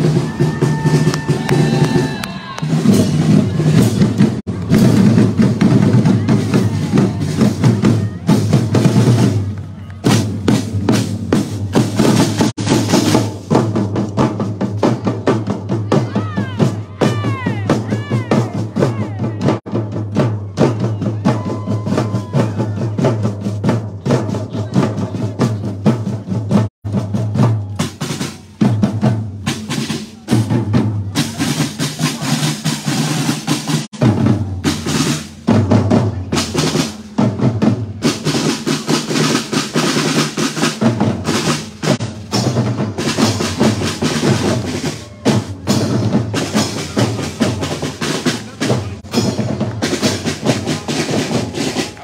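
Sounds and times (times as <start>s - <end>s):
bass drums: 0.0s - 52.0s
snare drum strokes and rolls: 0.0s - 52.0s
cymbals: 26.9s - 52.0s.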